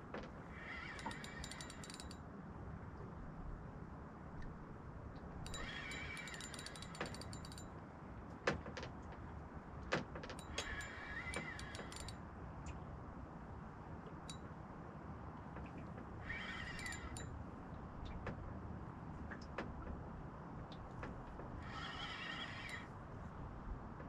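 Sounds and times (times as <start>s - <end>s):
fishing reel clicking whir: 1.0s - 2.2s, 5.5s - 7.6s, 10.4s - 12.2s, 16.8s - 17.2s.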